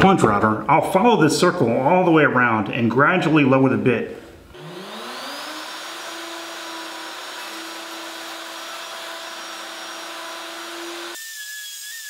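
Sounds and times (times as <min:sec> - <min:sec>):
router whining: 0:04.5 - 0:12.0.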